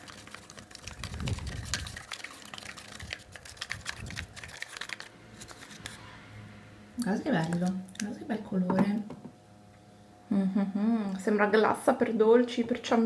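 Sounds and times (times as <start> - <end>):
stick stirring slime in plastic cup: 0.0 - 6.0, 7.0 - 8.2.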